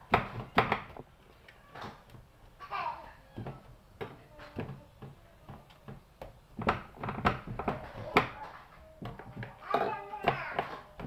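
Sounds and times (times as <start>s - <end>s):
dough knocks on metal tray: 3.4s - 11.0s.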